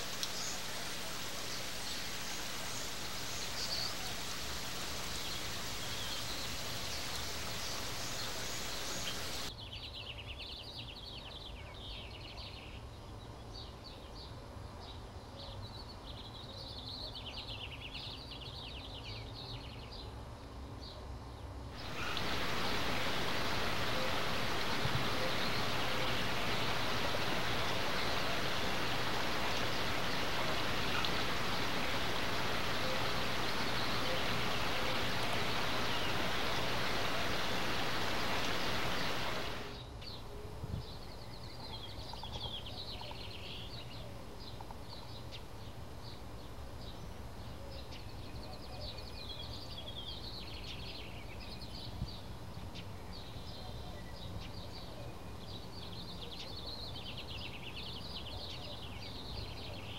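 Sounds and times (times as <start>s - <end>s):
creek water rushing: 0.0s - 9.5s, 21.8s - 39.8s
steady hiss: 0.0s - 9.5s, 21.8s - 39.9s
birds chirping: 0.0s - 9.6s, 21.8s - 39.9s.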